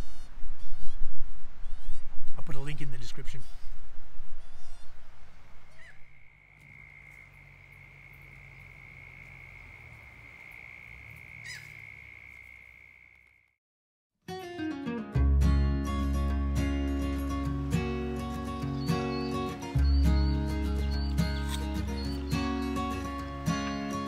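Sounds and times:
short high bird calls: 4.4s - 9.9s, 10.9s - 12.6s, 18.6s - 24.0s
falling bird call: 4.4s - 12.6s
acoustic guitar music: 14.3s - 24.0s.

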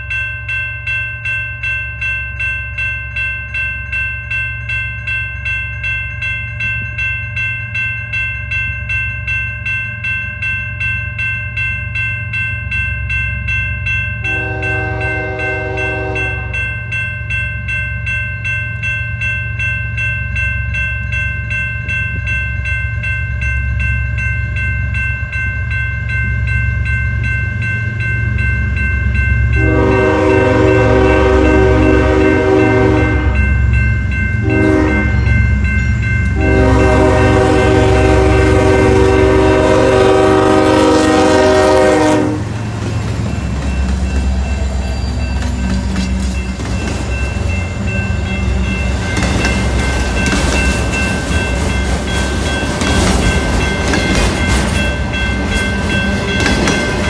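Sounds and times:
crossing bell ringing: 0.0s - 57.0s
locomotive air horn blasts: 14.3s - 16.6s, 29.6s - 33.4s, 34.4s - 35.2s, 36.4s - 42.6s
diesel locomotive rumble: 27.2s - 57.0s.

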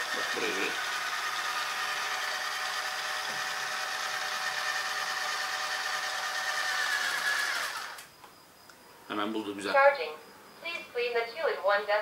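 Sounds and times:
robot vacuum fan whining: 0.0s - 8.1s.

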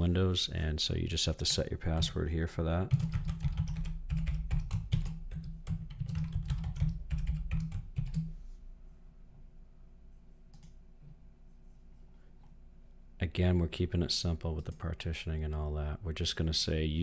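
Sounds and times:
computer keyboard typing: 2.9s - 8.3s.

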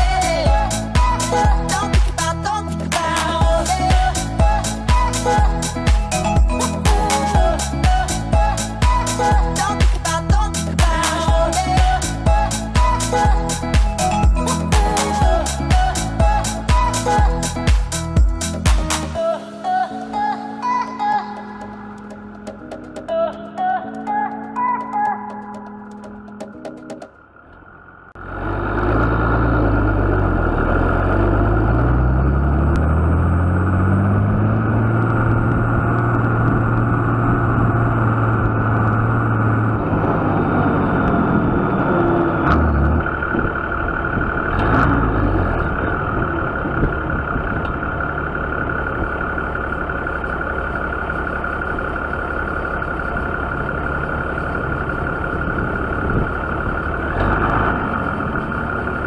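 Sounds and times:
tractor diesel engine revving: 0.0s - 19.2s, 27.0s - 59.0s.

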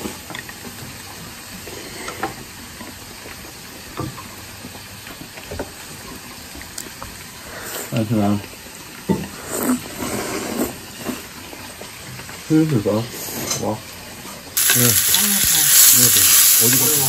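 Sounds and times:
food sizzling in a pan: 14.6s - 17.0s.

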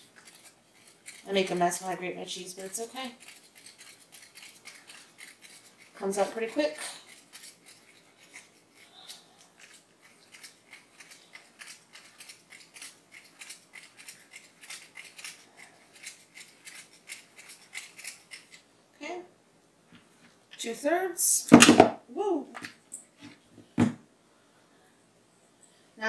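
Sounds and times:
cheese rasping on grater: 0.0s - 18.6s.

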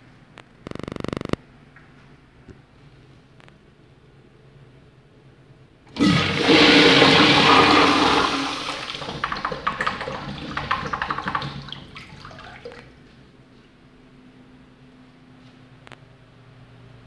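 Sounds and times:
urinal flushing: 5.9s - 13.0s
water gurgling in trap: 6.0s - 12.6s.

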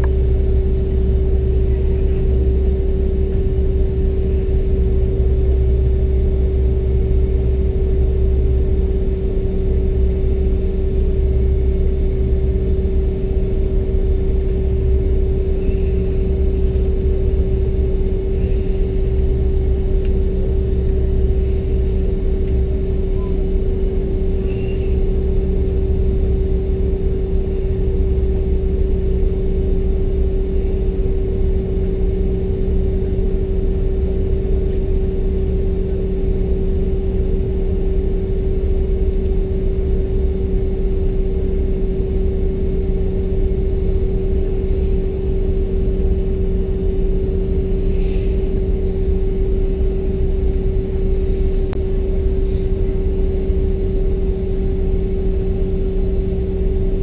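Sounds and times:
aircraft cabin hum: 0.0s - 57.0s.

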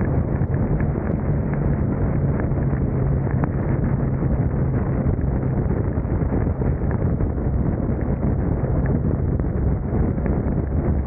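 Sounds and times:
raindrops ticking on camera: 0.0s - 5.3s
motorcycle engine hum: 0.0s - 11.0s
wind rushing over microphone: 0.0s - 11.0s.

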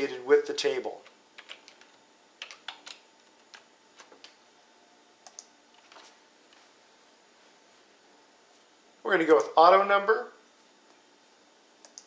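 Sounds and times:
faint computer keyboard clicks: 5.2s - 5.5s.

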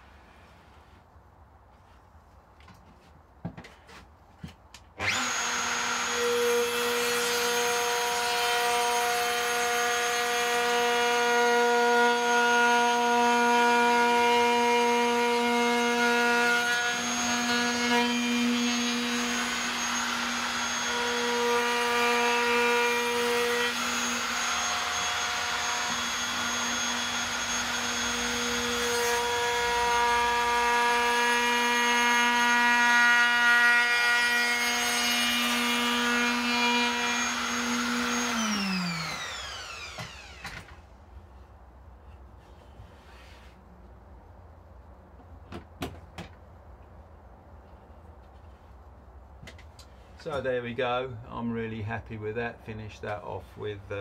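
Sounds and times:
router whining: 5.0s - 40.8s.

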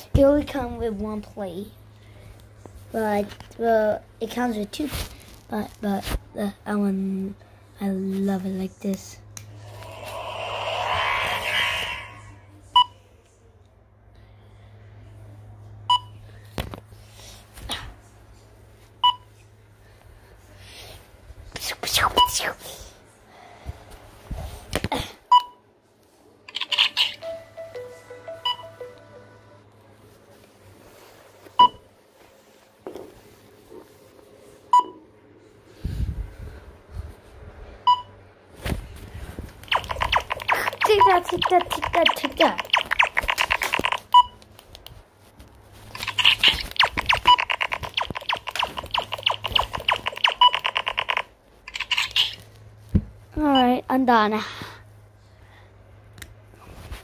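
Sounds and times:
electronic device beeping: 9.7s - 12.4s, 26.6s - 28.9s, 39.7s - 44.4s, 46.0s - 52.0s
stepping electronic tones: 9.7s - 12.4s, 39.7s - 44.2s, 46.0s - 51.2s.

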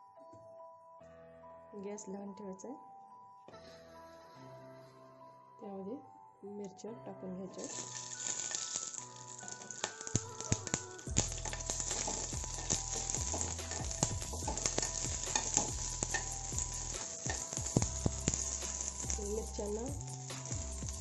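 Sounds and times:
chillies sizzling in hot oil: 7.6s - 21.0s.

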